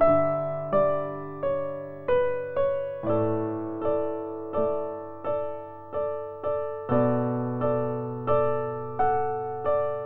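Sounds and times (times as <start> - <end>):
soft piano chords: 0.0 - 10.0.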